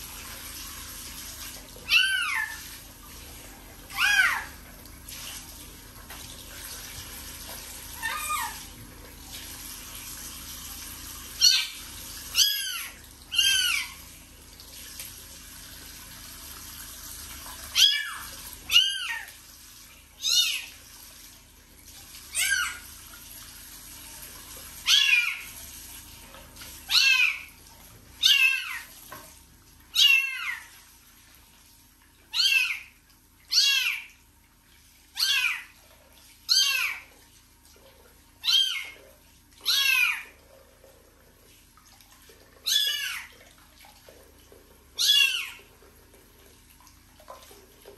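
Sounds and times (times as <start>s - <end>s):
tap water running: 0.0s - 47.9s.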